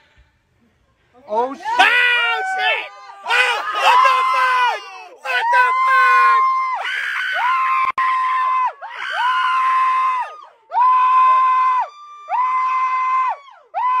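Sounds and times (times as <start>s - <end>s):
person screaming: 1.7s - 6.4s.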